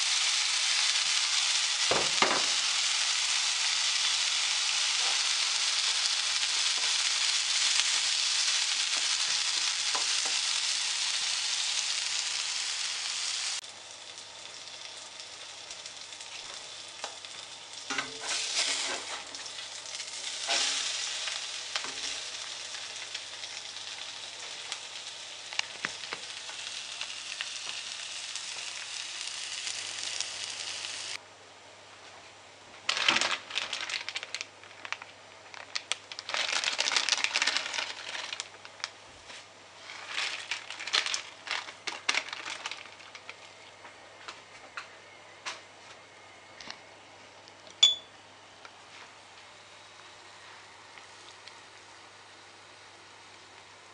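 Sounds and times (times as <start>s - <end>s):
food sizzling in a wok: 0.0s - 31.2s
plastic bag crinkling: 32.9s - 38.9s, 39.8s - 43.6s.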